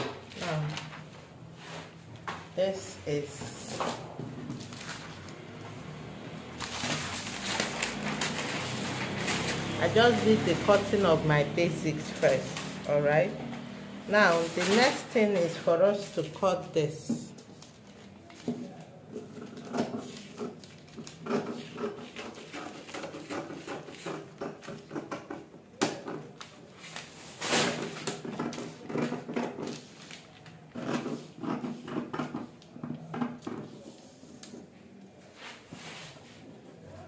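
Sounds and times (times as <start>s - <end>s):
scissors cutting paper: 6.6s - 13.3s, 19.1s - 25.4s.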